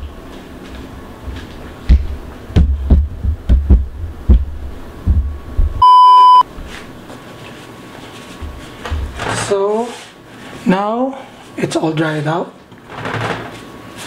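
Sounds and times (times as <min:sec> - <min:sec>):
censor bleep: 0:05.8 - 0:06.5.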